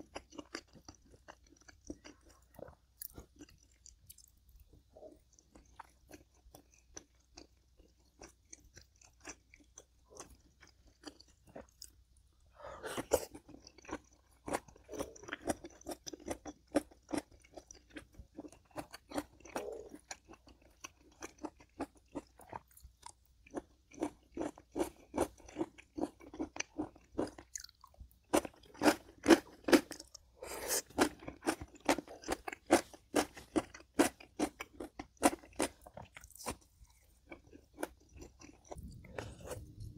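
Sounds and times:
person chewing crunchy food: 0:00.0 - 0:39.9.

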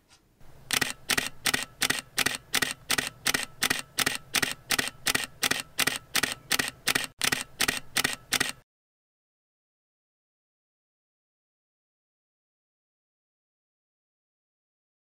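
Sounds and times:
camera shutter clicking: 0:00.7 - 0:08.6.

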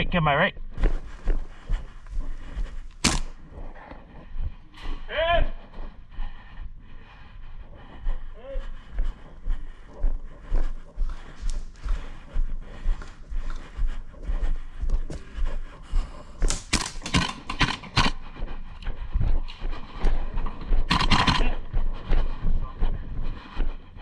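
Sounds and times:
footsteps: 0:00.5 - 0:24.0
sharp cracks: 0:02.7 - 0:03.9, 0:16.4 - 0:18.2.

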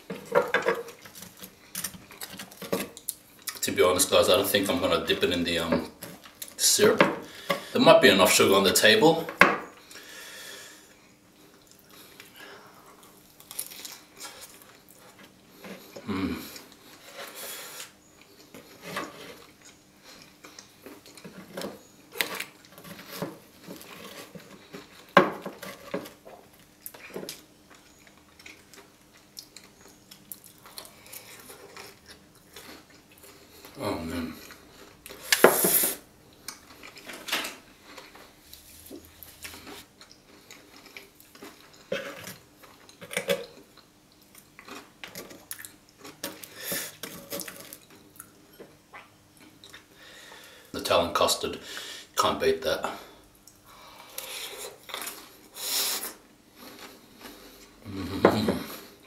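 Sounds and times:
close chewing: 0:25.8 - 0:35.4, 0:37.8 - 0:48.3.

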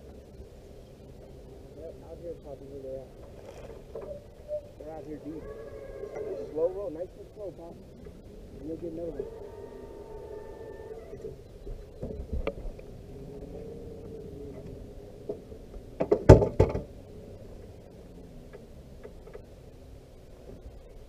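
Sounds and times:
low steady hum: 0:00.0 - 0:21.0
knocks and clatter on boat deck: 0:16.0 - 0:16.9.

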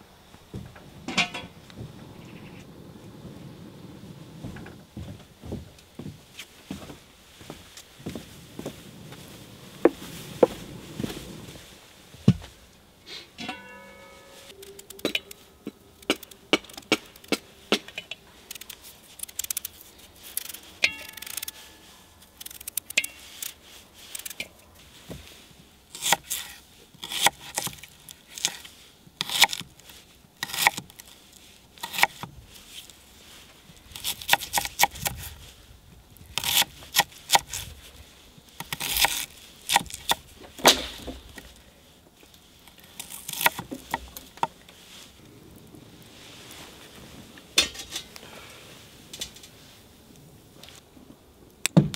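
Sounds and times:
brief ringing tone: 0:13.4 - 0:15.5.

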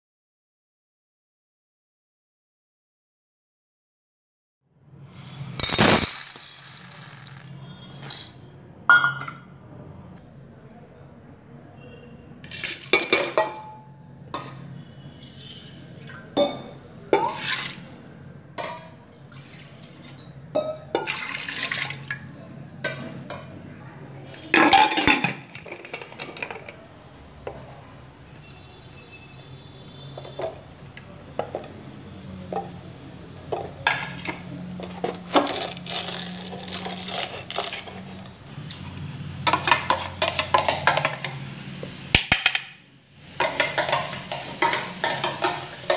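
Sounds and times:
pressure cooker hissing: 0:05.1 - 0:08.3, 0:25.8 - 0:45.9
metal clanks and scrapes: 0:33.6 - 0:41.4.

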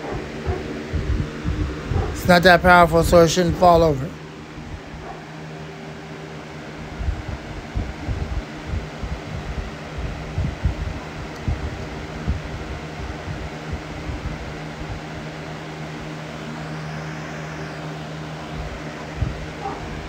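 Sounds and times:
wind buffeting microphone: 0:00.0 - 0:03.6, 0:06.8 - 0:15.2, 0:18.6 - 0:20.0
box fan air rushing: 0:00.0 - 0:20.0
fan motor hum: 0:00.0 - 0:20.0.

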